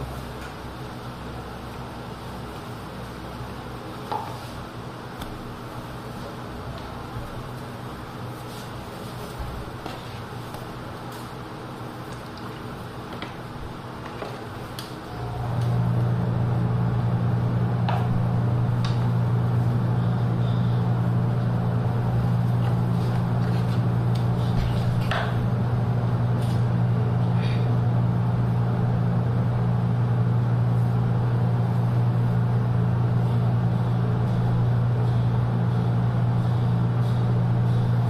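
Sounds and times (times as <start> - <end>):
low machine hum: 0.0 - 38.0.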